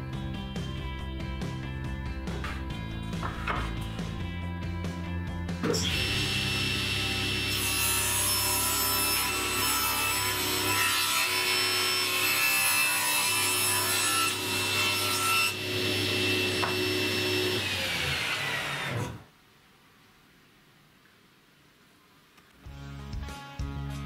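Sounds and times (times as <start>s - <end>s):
table saw cutting wood: 5.6s - 19.3s.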